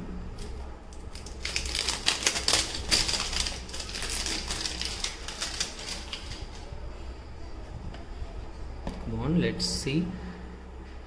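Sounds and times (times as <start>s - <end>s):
packaging clicks taps and rustles: 1.0s - 6.7s.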